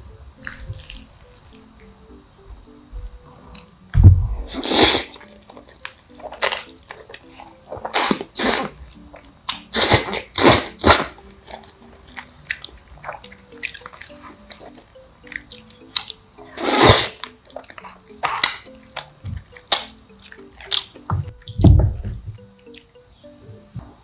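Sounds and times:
chewing: 3.3 - 3.7, 4.5 - 21.1, 22.6 - 22.9
noodles slurped: 4.5 - 5.2, 6.3 - 8.8, 9.5 - 11.6, 16.4 - 18.6.

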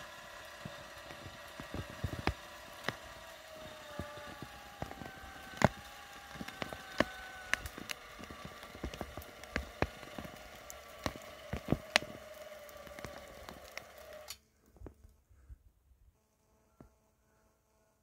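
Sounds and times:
electric winch motor whining: 0.0 - 14.4
roots cracking and snapping: 0.2 - 14.8.

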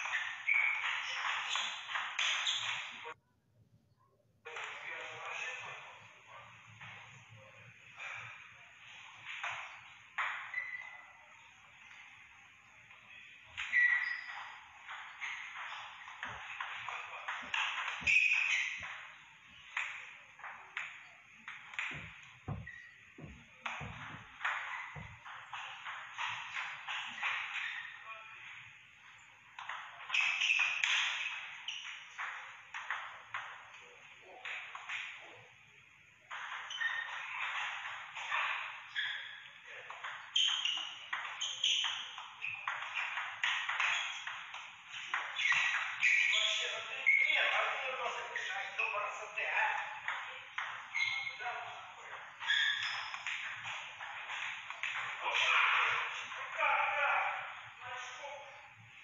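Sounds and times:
ping pong ball hitting paddles: 0.0 - 3.0, 13.5 - 27.8, 29.6 - 33.8, 36.3 - 48.8, 52.0 - 56.4.

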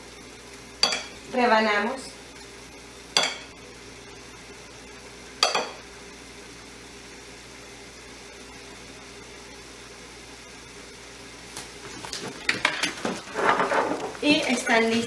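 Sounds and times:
knife clinking on ceramic plate: 0.8 - 1.2, 3.2 - 3.5, 5.4 - 5.8.

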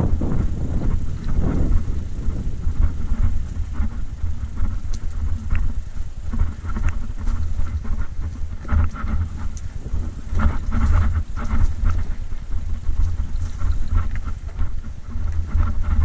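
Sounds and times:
bike rattles and clicks: 0.0 - 16.0
bike tyres rumbling on dirt: 0.0 - 16.0.

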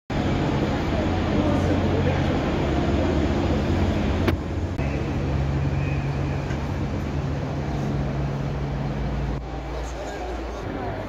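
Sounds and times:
vehicle engine idling: 0.1 - 11.0.

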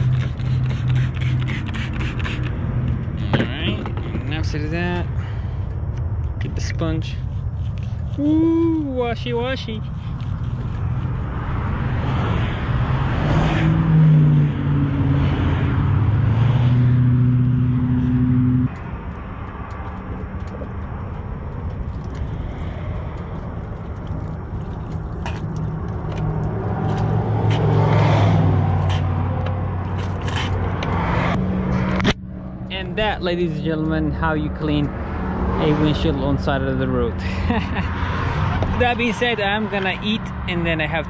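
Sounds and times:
spray bottle squirting: 0.0 - 2.6
low engine hum: 0.0 - 41.0
vehicles passing on highway: 0.0 - 41.0.

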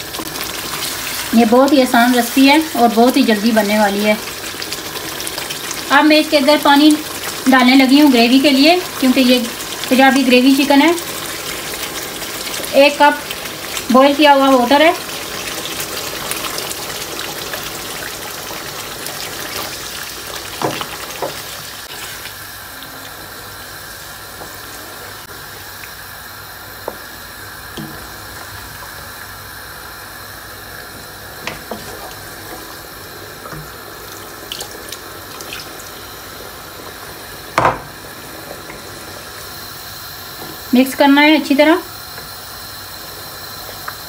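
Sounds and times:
water pouring into hot pan: 0.0 - 26.2, 31.1 - 40.7
wooden spoon knocking on pan: 20.6 - 21.5, 37.5 - 38.0.

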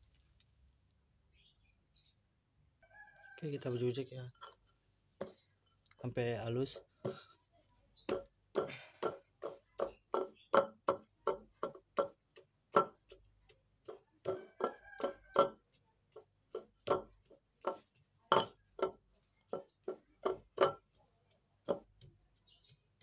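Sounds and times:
stone pestle pounding in mortar: 8.0 - 23.0.

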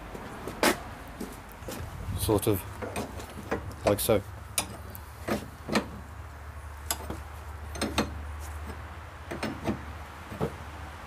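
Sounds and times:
spanner clicking on metal: 6.8 - 8.7.

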